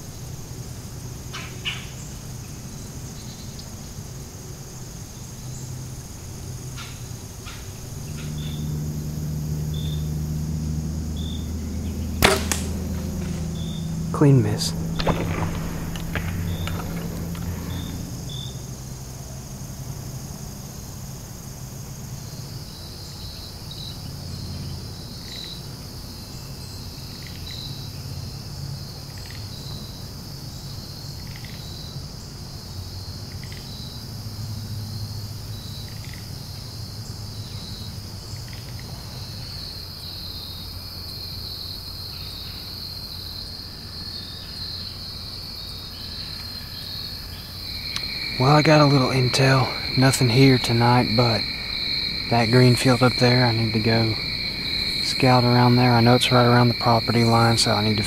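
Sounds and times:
faint low hum: 0.0 - 24.9, 42.1 - 58.0
crickets trilling: 0.0 - 58.0.

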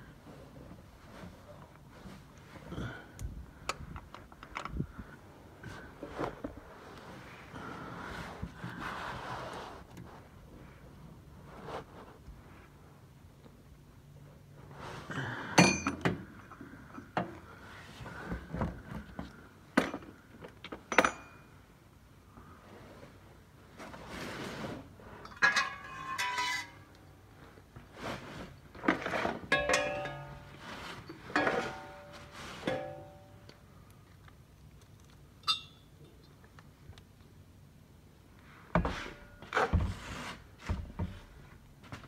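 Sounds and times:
metal tools clinking and knocking: 15.6 - 16.1, 20.9 - 21.5, 25.2 - 27.0, 29.5 - 33.4, 35.4 - 35.9.

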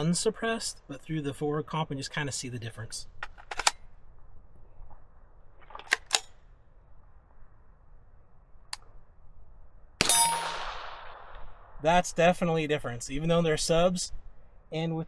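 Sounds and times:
gun mechanical clicks: 3.2 - 3.9, 5.6 - 6.4
gunshot crack: 10.0 - 11.8.

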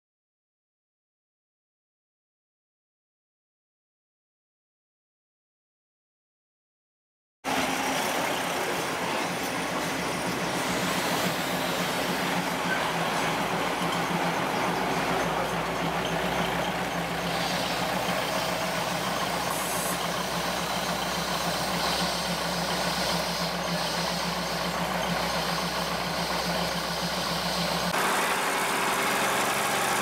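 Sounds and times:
diesel train engine running: 7.5 - 30.0.

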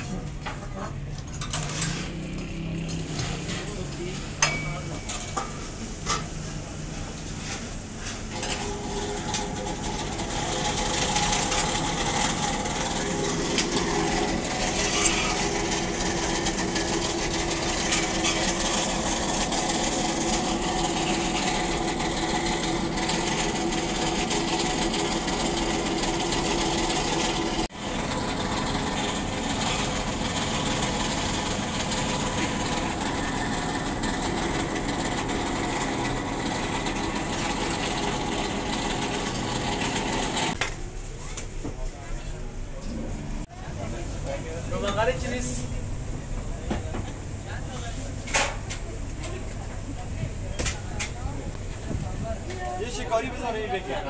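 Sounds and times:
steady machine hum: 7.8 - 40.6.

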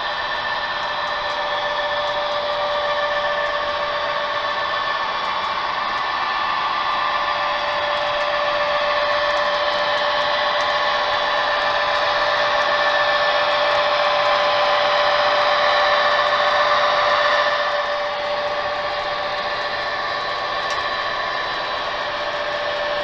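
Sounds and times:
model train motors whining: 0.0 - 23.0.

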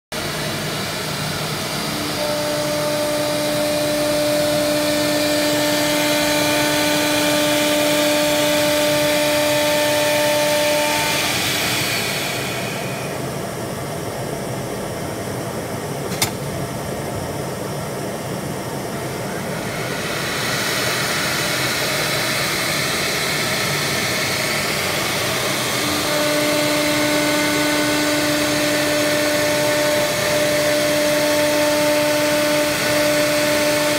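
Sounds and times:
wood router cutting board: 0.2 - 13.3, 19.2 - 33.9
sharp click: 16.1 - 16.5.

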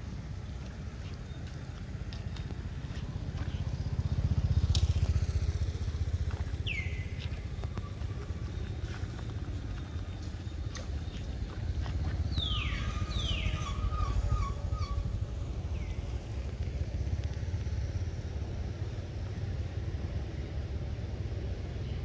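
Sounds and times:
passing vehicle engine rumble: 0.0 - 22.0
macaque squeal: 12.4 - 15.1.

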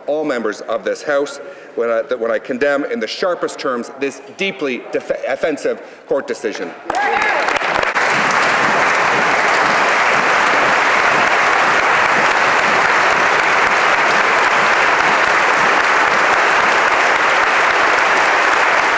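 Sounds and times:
crowd applauding: 6.9 - 18.9.

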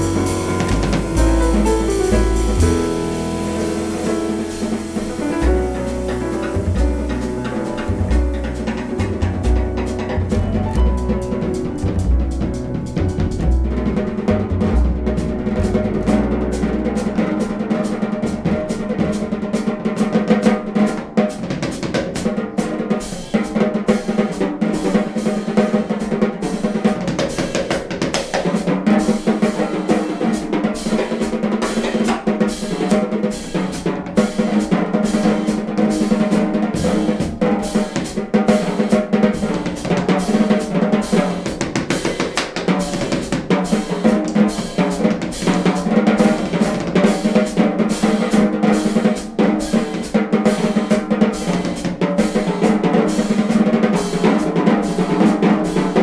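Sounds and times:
upright double bass: 0.0 - 17.7
grand piano: 0.0 - 27.4, 28.6 - 56.0
drum kit playing: 0.0 - 56.0.

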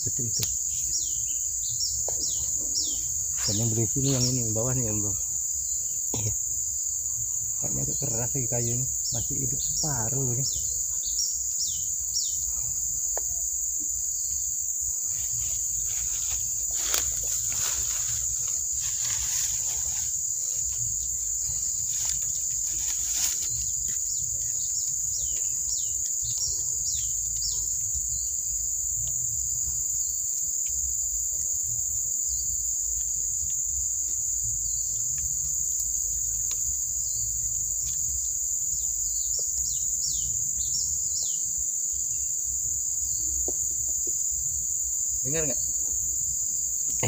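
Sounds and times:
insects droning: 0.0 - 47.0
bird chirps: 0.1 - 5.1.

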